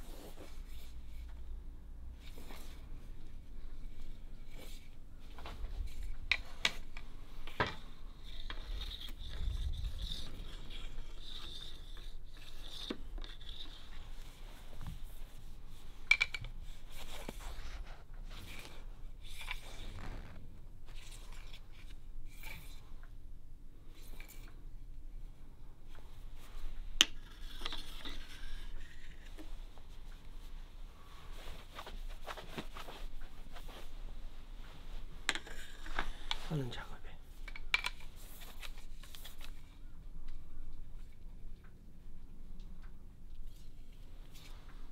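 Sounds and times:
bamboo rod scraping on wood: 8.2s - 14.0s
cloth rubbing along rod: 16.8s - 21.4s.

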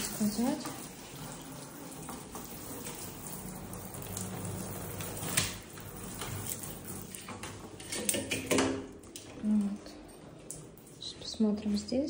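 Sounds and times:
shower spraying into bathtub: 0.0s - 8.4s.

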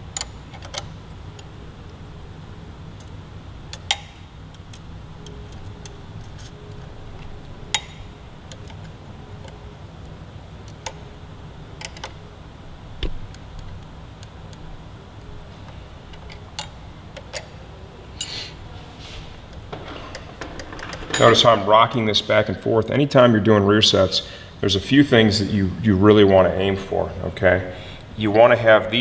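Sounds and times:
steady low hum: 0.0s - 29.0s
hand tools clicking and tapping: 3.7s - 9.6s.

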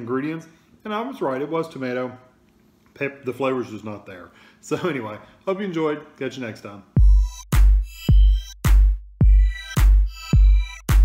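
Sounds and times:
deep heavy kick drum: 7.0s - 11.0s
high synth tones: 7.0s - 11.0s.

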